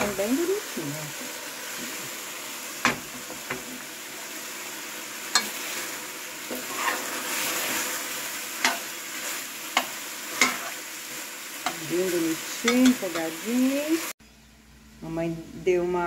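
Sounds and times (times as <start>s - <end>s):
chicken sizzling in a pan: 0.0s - 14.2s.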